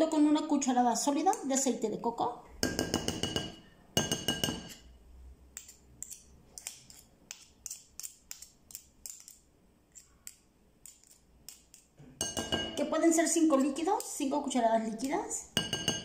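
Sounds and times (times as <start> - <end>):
metal spoon clinking glass bowl: 2.6 - 5.0, 10.0 - 12.8, 15.6 - 16.0
spoon ticks and scrapes: 5.5 - 12.0, 13.5 - 14.3.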